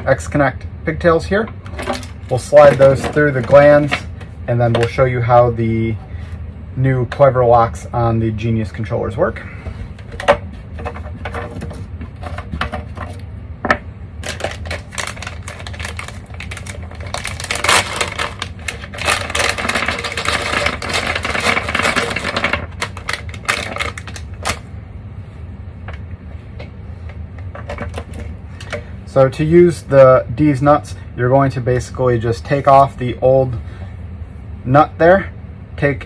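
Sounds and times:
plastic bag crinkling: 0:14.2 - 0:24.6.

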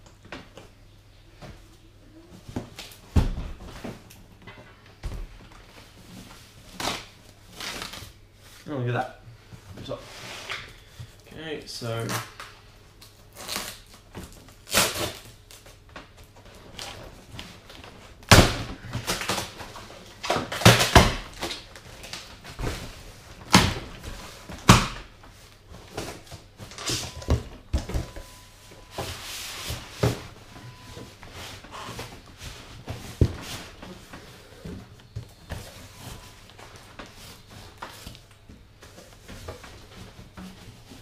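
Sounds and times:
thuds and knocks of contents: 0:25.8 - 0:36.3.

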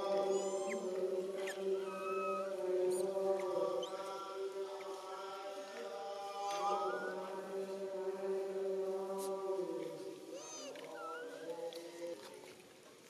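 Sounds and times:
low droning chant: 0:00.0 - 0:12.4.

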